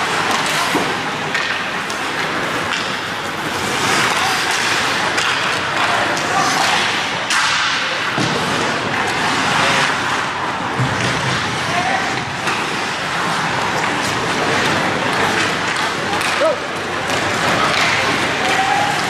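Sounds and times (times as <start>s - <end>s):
hockey sticks and puck clacking: 0.0s - 19.0s
skate blades scraping ice: 0.0s - 19.0s.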